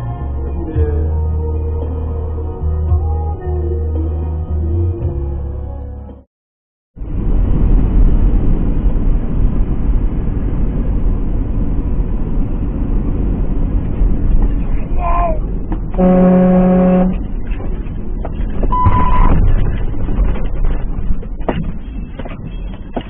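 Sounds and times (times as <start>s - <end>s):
truck engine and road rumble: 7.0s - 23.0s
truck air horn: 16.0s - 17.2s.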